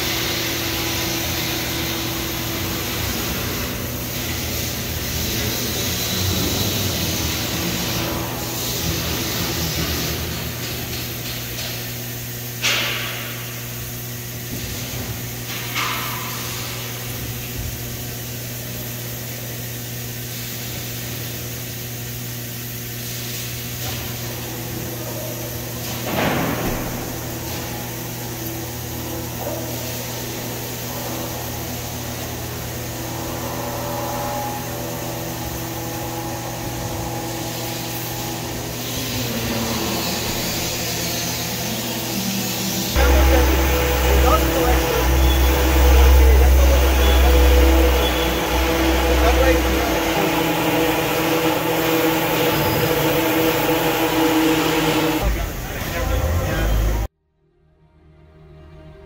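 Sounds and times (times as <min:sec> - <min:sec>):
laser cutter hiss: 0:00.0 - 0:57.1
machine hum: 0:00.0 - 0:57.1
sharp bursts: 0:38.0 - 0:55.2.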